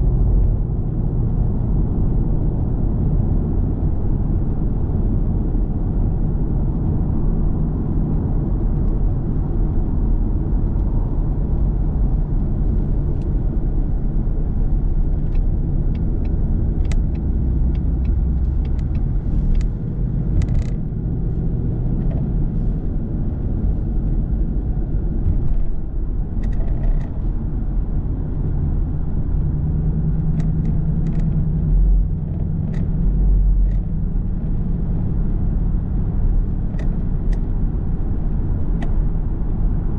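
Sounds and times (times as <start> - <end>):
car road and engine rumble: 0.0 - 39.9.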